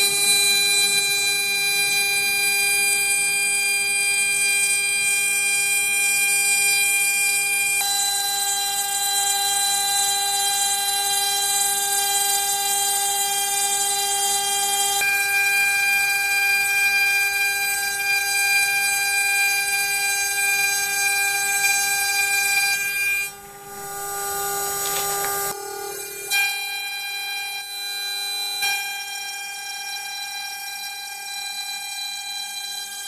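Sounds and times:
router spindle whine: 0.0 - 33.0.

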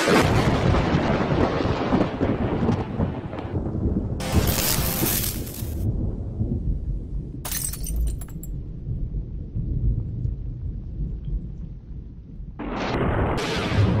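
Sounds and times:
deep rumble: 0.1 - 14.0
crackling shattering clicks: 4.2 - 5.9, 7.5 - 8.5.

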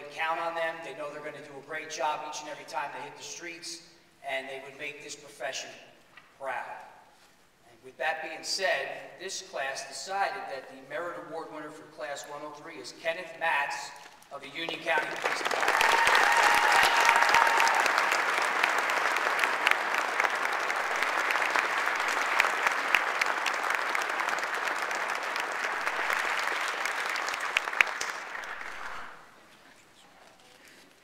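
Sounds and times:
audience applauding: 14.6 - 29.4.

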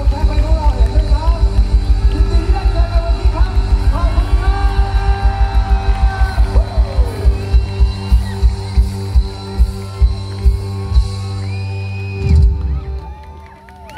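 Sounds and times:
pounding kick drum beat: 0.0 - 11.4
live rock band playing: 0.0 - 13.1.

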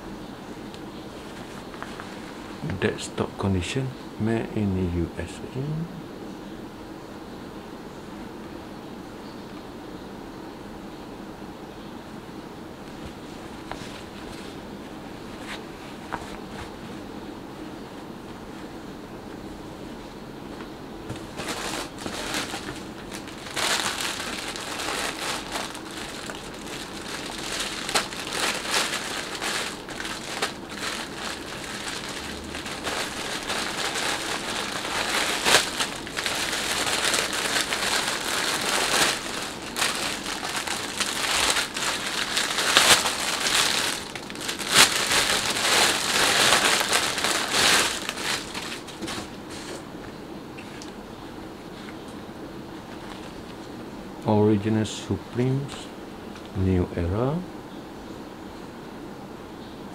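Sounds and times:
plastic bag crinkling: 21.1 - 49.8.

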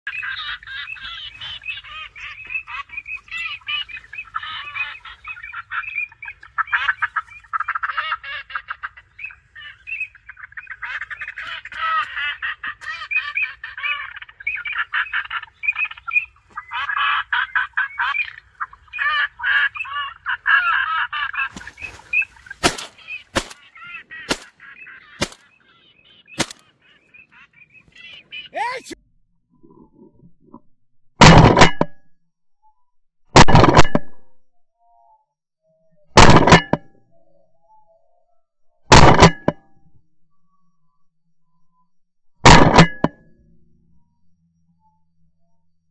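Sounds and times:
ducks calling: 0.1 - 29.0
sharp cracks: 22.6 - 24.6, 25.2 - 25.5, 26.4 - 26.7.

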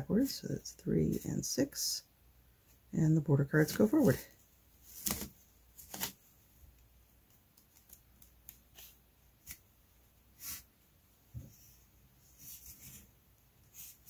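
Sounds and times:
cards clicking and rustling: 4.9 - 6.2.

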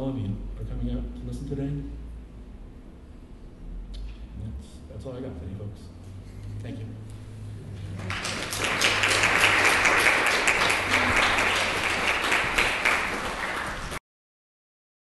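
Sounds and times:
crowd applauding: 7.8 - 14.0.

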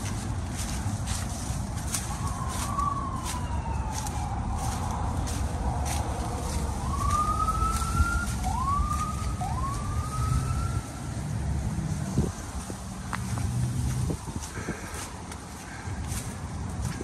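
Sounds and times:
distant siren wailing: 0.0 - 11.4
footsteps crunching on dry reeds: 0.0 - 17.0.

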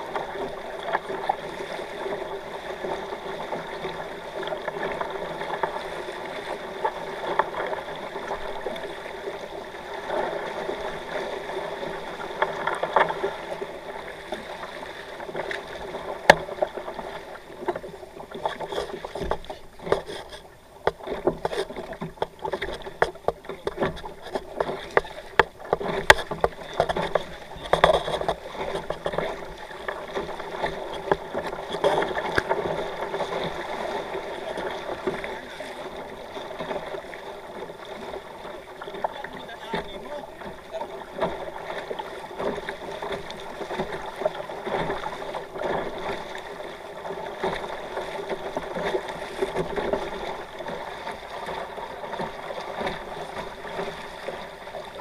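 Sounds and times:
water washing against hulls: 0.0 - 55.0
sharp knocks and clicks: 18.4 - 29.3.

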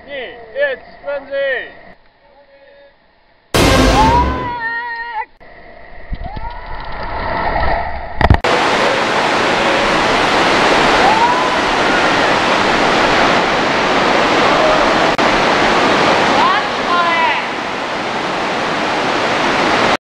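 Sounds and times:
rushing noise: 3.6 - 4.6.

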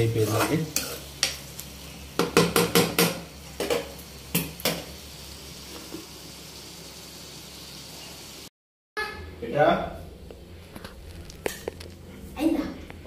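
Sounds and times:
spatula scraping a pan: 0.0 - 1.4.

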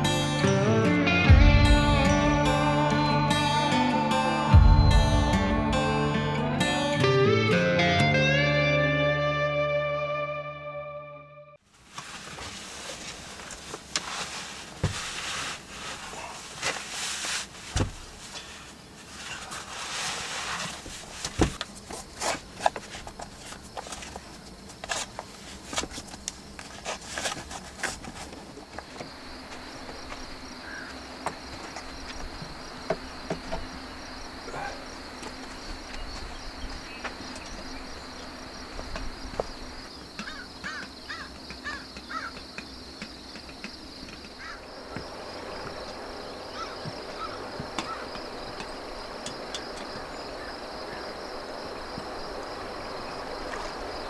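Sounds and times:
rustling: 11.6 - 29.9
high-pitched insect buzz: 29.1 - 54.0
small knocks and clicks: 40.2 - 44.4.

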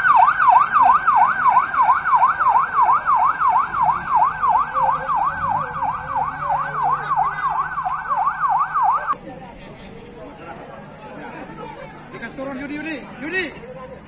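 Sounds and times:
police siren yelping: 0.0 - 9.2.

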